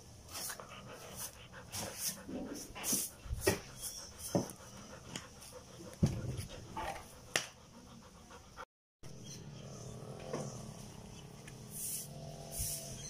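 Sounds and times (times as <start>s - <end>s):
broom sweeping floor: 0.0s - 6.4s, 11.6s - 13.0s.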